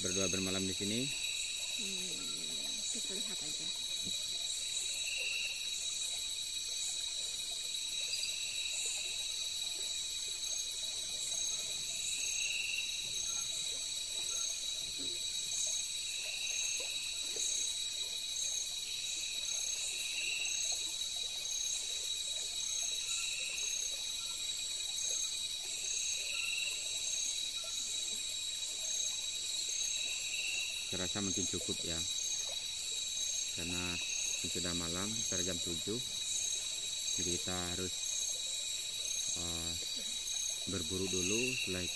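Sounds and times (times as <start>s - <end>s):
insects trilling: 0.0s - 41.9s
soft insect call: 0.0s - 41.9s.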